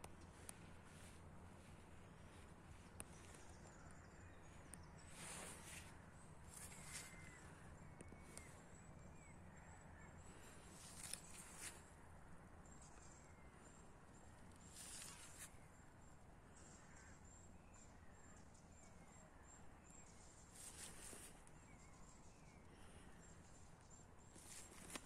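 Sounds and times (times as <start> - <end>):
soft rustles: 5.1 - 7.4, 10.8 - 11.9, 14.7 - 15.5, 20.6 - 21.4, 24.4 - 25.0.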